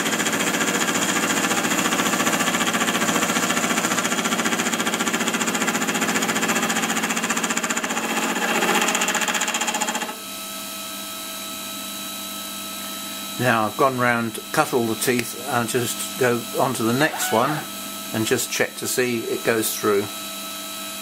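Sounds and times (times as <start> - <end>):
milling spindle hum: 13.6 - 18.3
gear cutter rattling chatter: 13.8 - 20.1.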